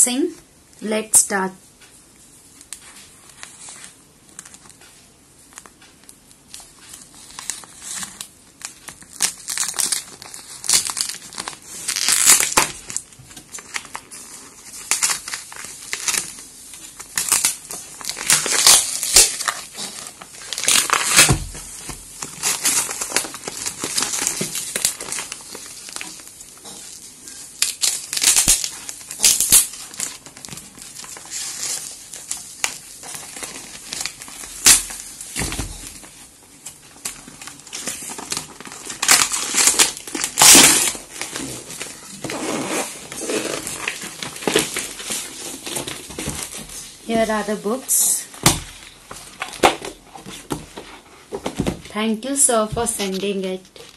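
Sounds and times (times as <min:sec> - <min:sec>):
cardboard box torn open: 0:09.2 - 0:13.0, 0:17.2 - 0:26.0, 0:37.7 - 0:46.6.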